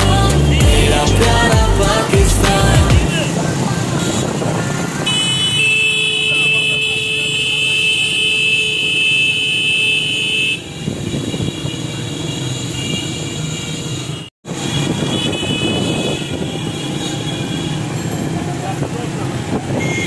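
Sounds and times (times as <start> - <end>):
horns honking: 0.0 - 18.2, 19.8 - 20.0
small motorcycle engines: 3.1 - 7.8.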